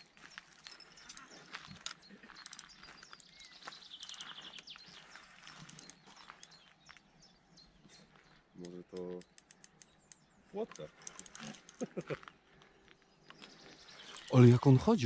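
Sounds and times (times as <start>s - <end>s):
small clicks and rustles: 0.0s - 7.0s, 8.0s - 14.4s
bird trilling: 0.7s - 6.8s, 13.3s - 14.8s.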